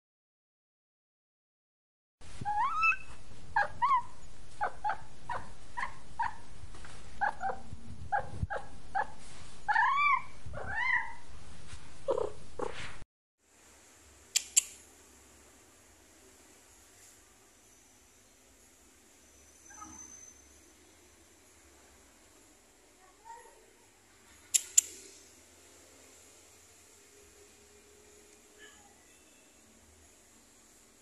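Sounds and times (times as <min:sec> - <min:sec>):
cat meowing: 0:09.7 - 0:11.2
faint steady hiss: 0:11.2 - 0:31.0
sharp clicks: 0:14.3 - 0:14.8, 0:24.6 - 0:25.0.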